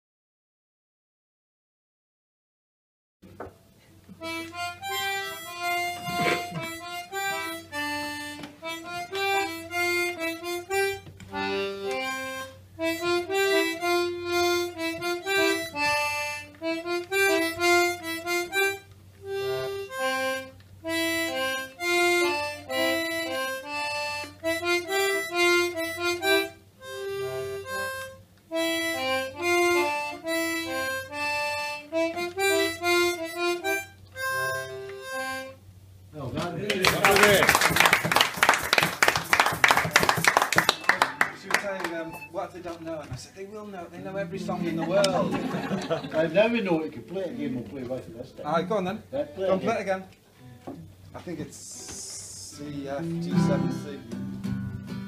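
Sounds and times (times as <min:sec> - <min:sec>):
concertina: 0:03.4 - 0:55.0
harmonica: 0:04.2 - 0:35.9, 0:38.6 - 0:42.8, 0:51.5 - 0:55.0.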